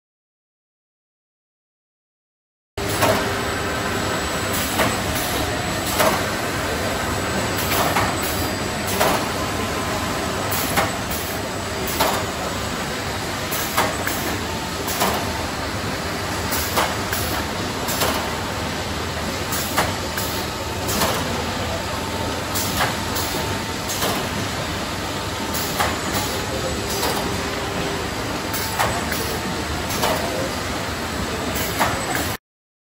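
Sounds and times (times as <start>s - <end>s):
machine mechanical din: 4.4s - 18.4s, 19.2s - 30.5s
machine clacking: 4.5s - 6.4s, 7.5s - 9.4s, 10.4s - 12.4s, 13.5s - 15.3s, 16.4s - 18.4s, 19.5s - 21.4s, 22.5s - 24.4s, 25.5s - 30.5s, 31.6s - 32.4s.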